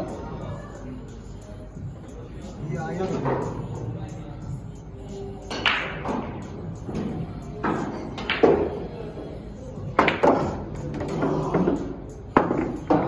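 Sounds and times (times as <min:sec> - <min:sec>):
billiard balls striking: 0:05.5 - 0:08.8, 0:10.0 - 0:13.0.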